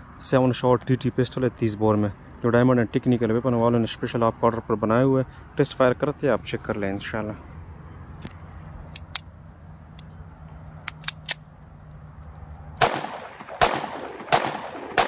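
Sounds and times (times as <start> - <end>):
pistol shots: 12.8 - 15.0.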